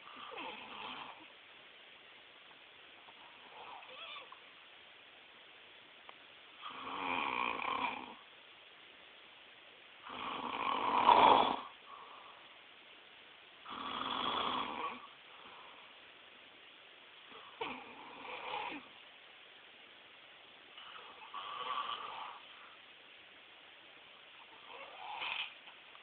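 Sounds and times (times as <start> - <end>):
man snoring: 0.0 - 1.2, 6.6 - 8.2, 10.0 - 11.8, 13.7 - 15.1, 17.5 - 18.9, 21.0 - 22.4.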